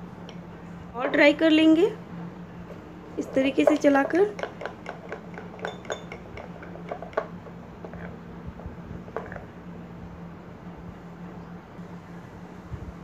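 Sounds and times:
steady low hum: 0:00.0 - 0:13.0
metal spoon stirring chocolate: 0:03.2 - 0:08.0.

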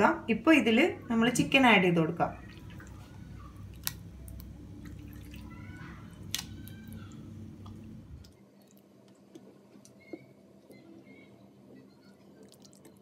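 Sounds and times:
low background hum: 0:00.0 - 0:13.0
wet plops and squelches: 0:03.7 - 0:05.4, 0:06.2 - 0:07.0.

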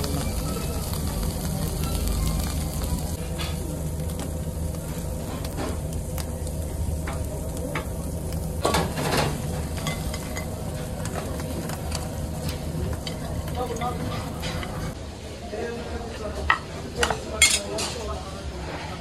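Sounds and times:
steady low hum: 0:00.0 - 0:15.0
lobster sizzling on grill: 0:00.0 - 0:15.3.

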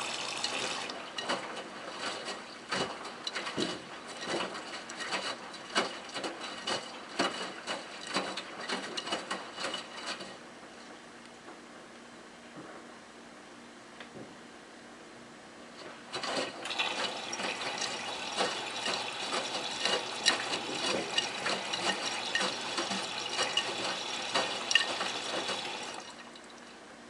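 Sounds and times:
water spraying into washing machine drum: 0:00.0 - 0:10.0, 0:16.2 - 0:26.5.

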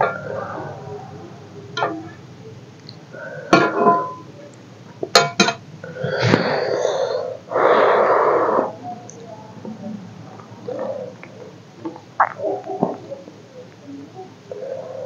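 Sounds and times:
breathy mouth sounds: 0:10.4 - 0:13.2.

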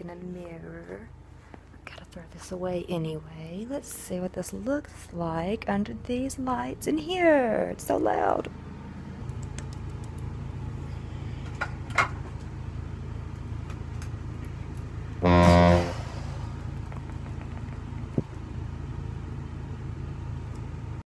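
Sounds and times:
fan humming: 0:00.0 - 0:21.0
loud buzzing tone: 0:15.2 - 0:16.6.

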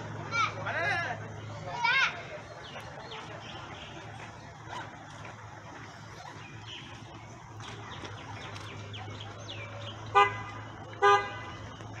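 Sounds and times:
vehicle horn toots: 0:10.1 - 0:11.7.

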